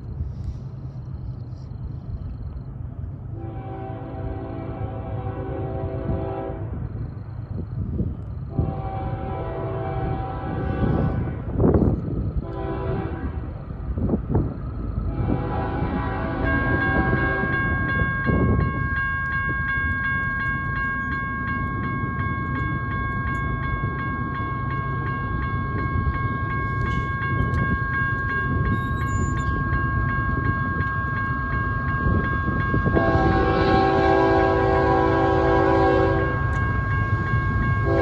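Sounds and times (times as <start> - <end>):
freight train rumble: 0.0 - 38.0
locomotive horn: 3.3 - 6.8, 8.5 - 11.5, 12.4 - 13.6, 15.1 - 17.7, 32.8 - 36.6
crossing warning bell ringing: 3.6 - 38.0.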